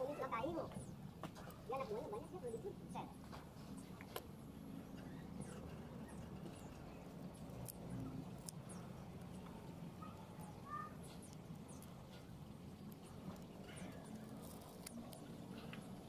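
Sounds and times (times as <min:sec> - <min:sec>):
low steady hum: 0:00.0 - 0:16.0
small ticks: 0:03.2 - 0:16.0.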